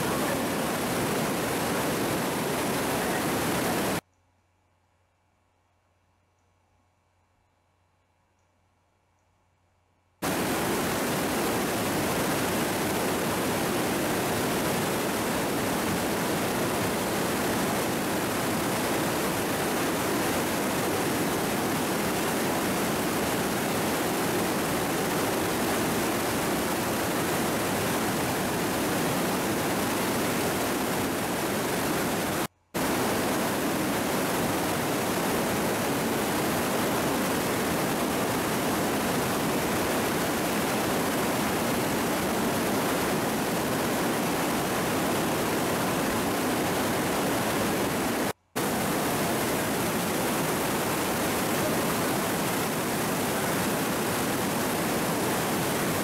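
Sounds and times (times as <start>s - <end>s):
river rushing through rock gorge: 0.0s - 4.0s, 10.2s - 56.0s.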